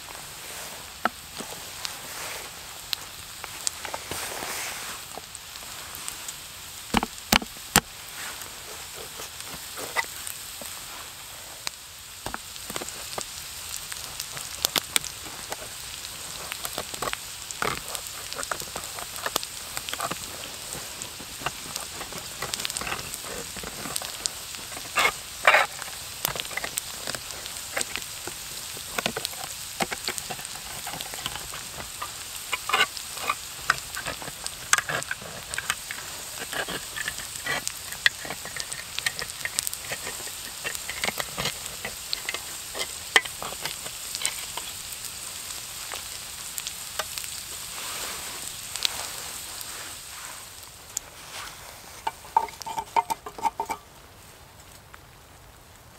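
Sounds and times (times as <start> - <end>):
food sizzling in a frying pan: 0.0 - 54.3
knife scraping tin can lid: 17.6 - 28.0, 29.0 - 44.7, 52.0 - 53.8.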